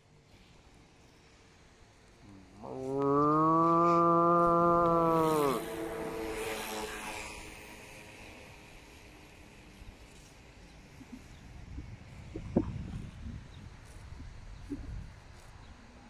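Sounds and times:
faint outdoor background: 0.0s - 16.0s
man imitating cow moo: 2.3s - 5.8s.

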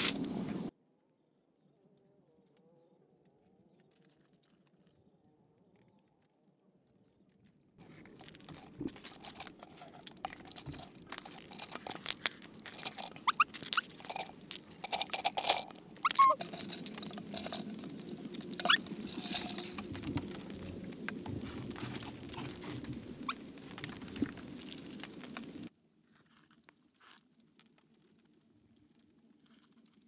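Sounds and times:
shells clicking and crunching: 7.8s - 25.7s
short high squeaks: 13.1s - 14.0s, 16.0s - 16.4s.

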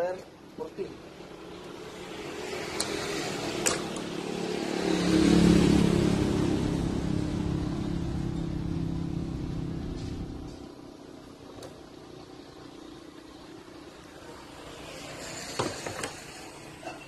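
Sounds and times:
vehicle engine passing: 1.1s - 11.0s, 13.6s - 17.0s.

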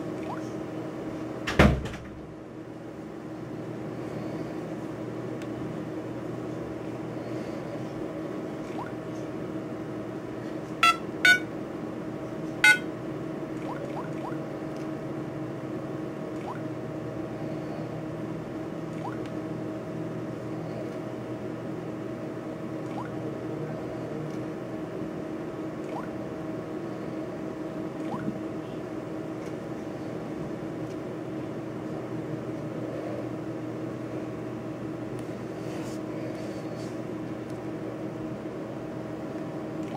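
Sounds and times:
low background hum: 0.0s - 39.9s
short electronic beeps: 10.8s - 11.5s, 12.6s - 12.9s.

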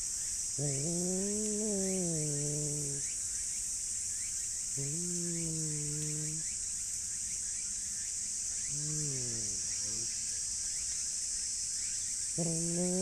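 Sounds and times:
cat growling: 0.6s - 3.1s, 4.8s - 6.4s, 8.7s - 10.1s, 12.4s - 13.0s
high-pitched insect buzz: 0.6s - 3.1s, 4.8s - 6.5s, 8.6s - 10.2s, 12.4s - 13.0s.

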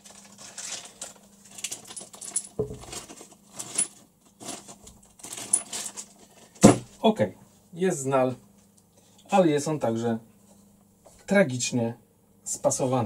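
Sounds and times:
plastic bag rustling: 0.0s - 6.7s
metal pieces clinking: 0.3s - 4.0s, 5.2s - 6.1s.

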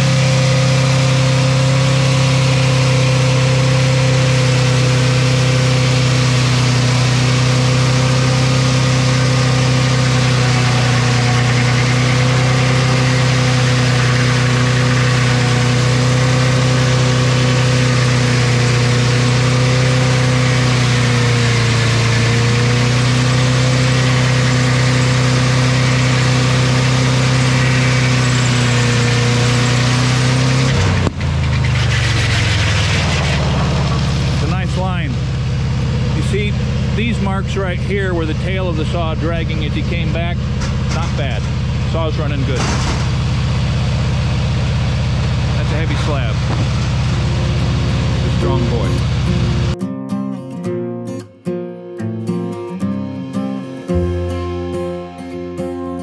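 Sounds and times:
sawmill saw humming: 0.0s - 49.8s.

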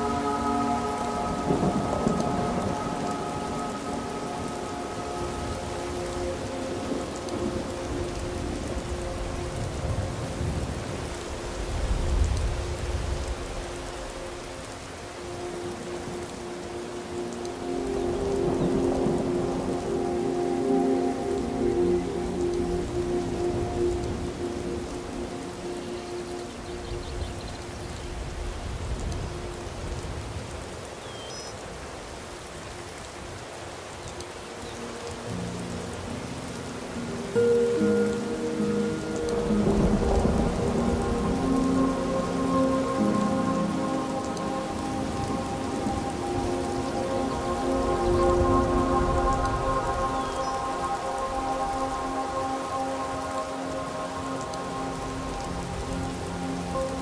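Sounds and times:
rain hissing: 0.0s - 57.0s
low thunder rumbles: 1.2s - 14.2s, 39.4s - 44.0s.

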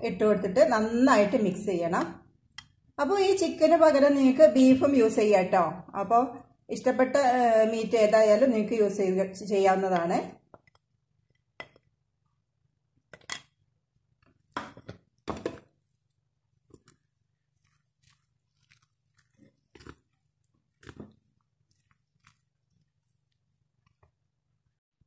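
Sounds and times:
spoon scraping batter in bowl: 9.7s - 12.0s, 14.2s - 24.2s.

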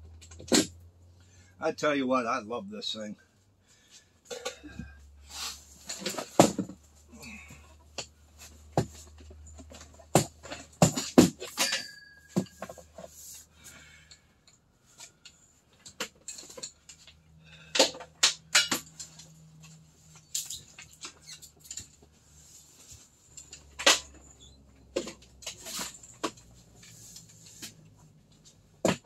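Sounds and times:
metal frame clicking and clanking: 7.8s - 13.1s, 15.8s - 22.1s, 22.9s - 27.8s
short metallic ring: 11.5s - 12.8s.

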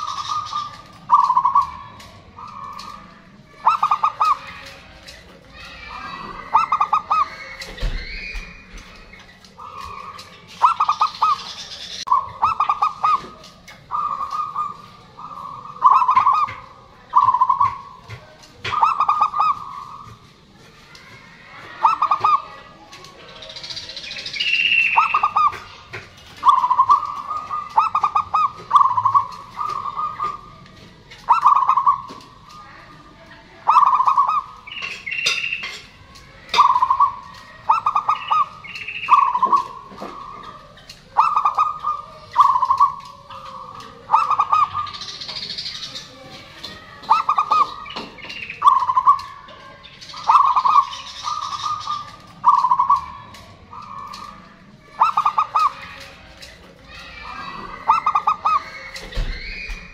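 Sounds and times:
dove cooing: 0.0s - 20.3s, 21.0s - 32.9s, 33.5s - 59.9s
bird chirps: 0.0s - 59.9s.

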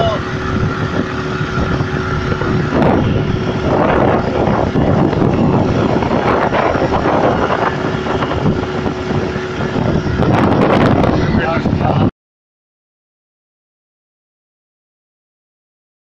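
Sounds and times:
outboard engine running: 0.0s - 12.1s
wind on microphone: 0.0s - 12.1s.

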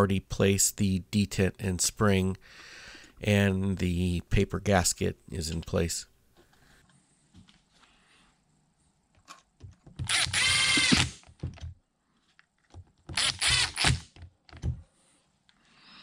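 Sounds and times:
cordless drill whine: 10.1s - 11.2s, 13.2s - 14.0s.

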